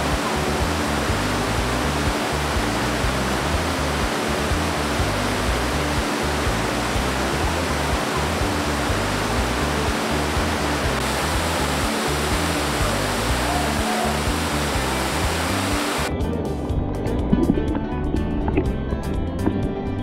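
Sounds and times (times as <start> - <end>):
waterfall cascading over rocks: 0.0 - 16.1
music of held low notes: 0.0 - 20.0.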